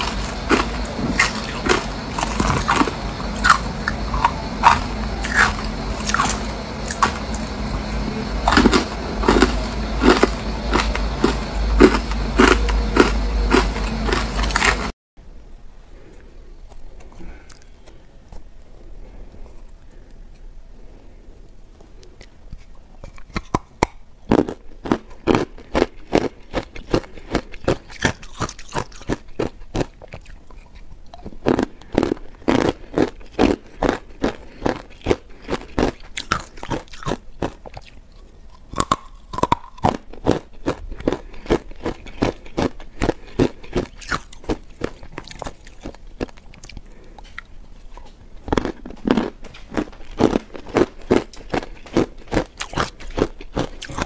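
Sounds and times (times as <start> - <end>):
crunching ice being chewed: 0.0 - 14.9, 16.6 - 21.0, 21.7 - 54.0.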